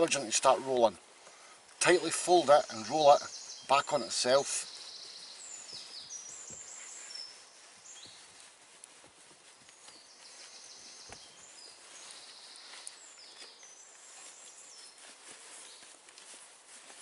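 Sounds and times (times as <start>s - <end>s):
songbirds singing: 0.0s - 17.0s
fabric rustling: 4.8s - 17.0s.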